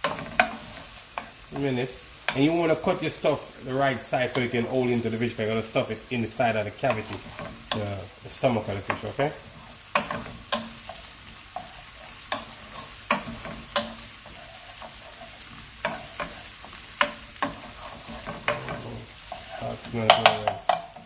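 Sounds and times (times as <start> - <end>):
onion sizzling in oil: 0.0 - 21.0
wooden spatula scraping pan: 0.0 - 21.0.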